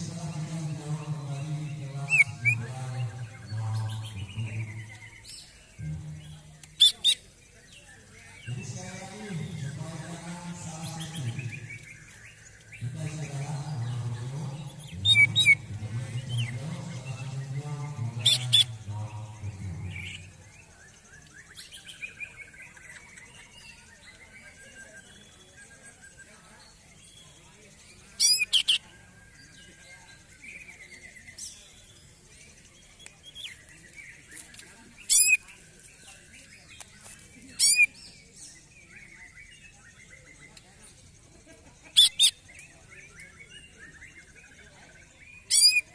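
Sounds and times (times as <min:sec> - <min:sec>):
bird singing: 0:00.0 - 0:45.9
sharp high bird calls: 0:06.7 - 0:07.3, 0:17.9 - 0:18.9, 0:28.0 - 0:29.0, 0:34.2 - 0:35.6, 0:37.4 - 0:38.1, 0:41.9 - 0:42.6, 0:45.3 - 0:45.9
bird giving shrill calls: 0:28.2 - 0:28.8, 0:35.1 - 0:35.4, 0:37.6 - 0:38.0, 0:42.0 - 0:42.4, 0:45.5 - 0:45.9.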